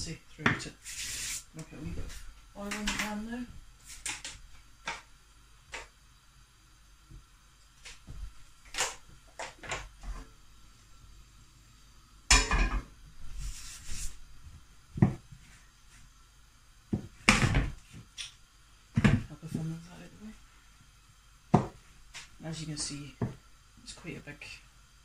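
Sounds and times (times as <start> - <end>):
rolling pin knocking on dough: 21.5 - 21.8.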